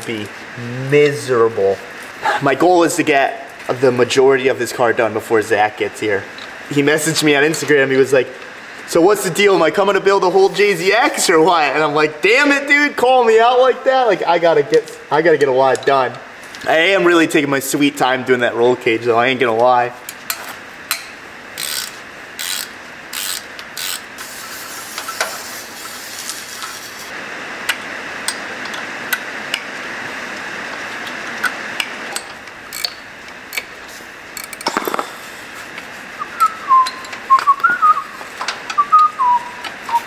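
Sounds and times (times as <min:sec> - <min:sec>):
ratchet wrench clicking: 0:21.6 - 0:25.3, 0:32.1 - 0:33.7, 0:34.4 - 0:35.0
person whistling: 0:36.2 - 0:38.2, 0:38.8 - 0:40.0.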